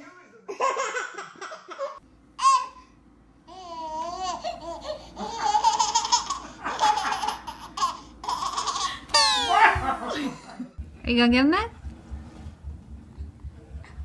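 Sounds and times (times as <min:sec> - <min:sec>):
baby giggling: 0:03.5 - 0:10.2.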